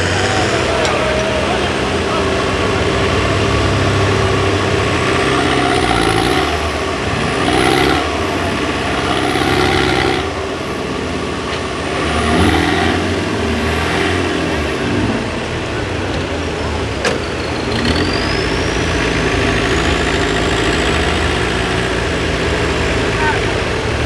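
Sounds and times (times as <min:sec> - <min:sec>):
buggy engine revving: 0:00.0 - 0:24.0
tyres churning mud: 0:00.0 - 0:24.0.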